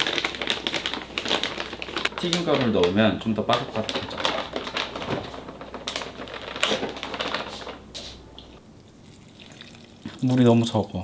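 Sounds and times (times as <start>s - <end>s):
plastic packet crinkling: 0.0s - 7.8s.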